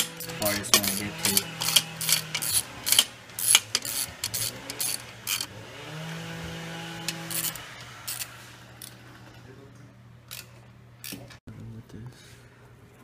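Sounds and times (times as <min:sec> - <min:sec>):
ratchet wrench clicking: 0:00.0 - 0:05.5, 0:07.1 - 0:09.0, 0:10.3 - 0:11.3.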